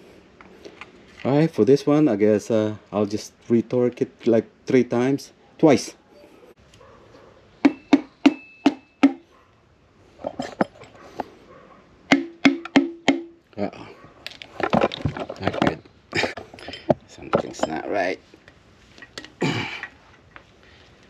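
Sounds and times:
hammer handle knocking on piston: 12.1 - 13.4.

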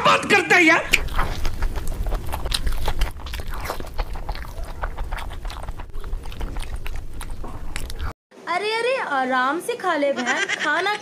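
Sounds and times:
biting and chewing fried eggs: 0.8 - 8.2
low hum: 0.8 - 8.2.

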